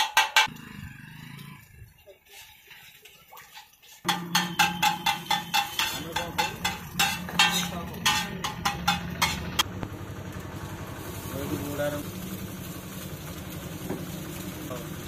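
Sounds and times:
spatula striking iron griddle: 0.0 - 0.6, 4.1 - 9.7.

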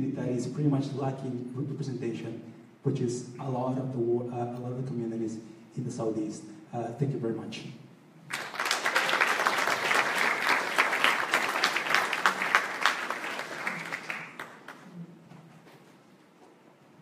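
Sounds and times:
audience applauding: 8.3 - 14.9.

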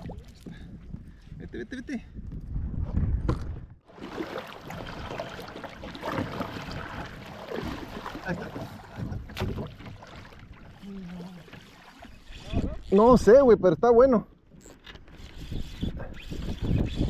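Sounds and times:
water sloshing around hull: 0.0 - 1.3, 3.5 - 13.3
kayak paddle splashing: 3.9 - 12.6.

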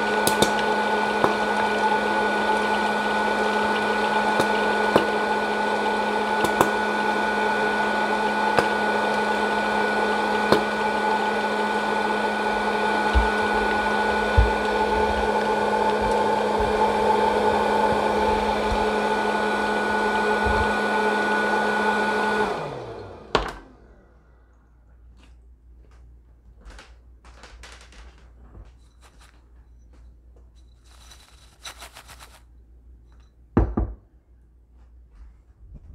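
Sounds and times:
popcorn popper fan motor whirring: 0.0 - 24.4.

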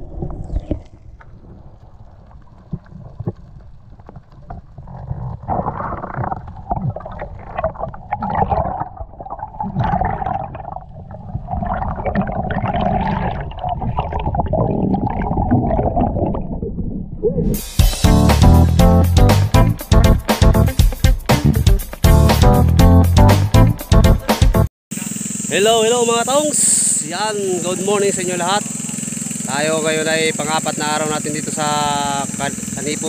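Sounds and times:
gurgling bubbles: 0.0 - 17.6
muffled underwater rumble: 0.0 - 17.6.

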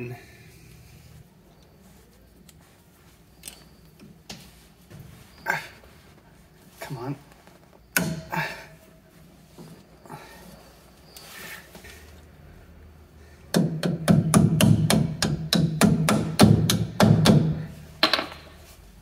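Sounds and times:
hammer tapping metal: 13.5 - 18.5.

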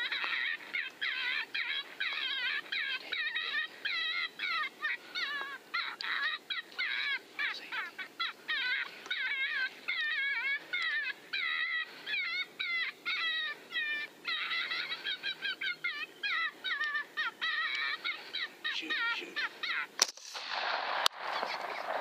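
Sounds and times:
high-pitched squealing calls: 0.0 - 20.5
rifle shot: 20.0 - 22.0.

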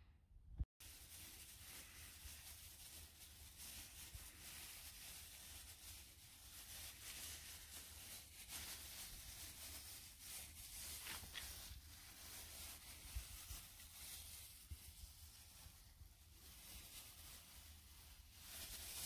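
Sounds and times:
plastic bag rustling on metal pipe: 0.8 - 19.0.

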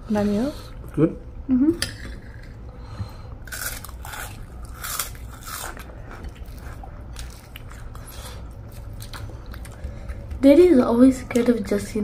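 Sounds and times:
crunchy snack being chewed: 3.4 - 10.2.

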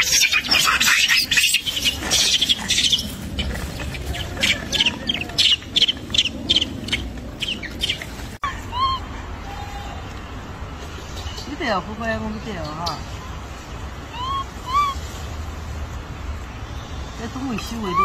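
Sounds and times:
squeaky bird calls: 0.0 - 8.1
bird chirping: 0.0 - 8.4.

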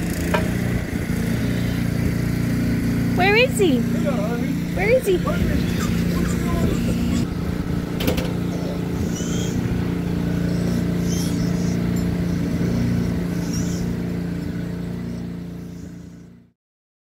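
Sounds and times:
engine idling hum: 0.0 - 16.5.

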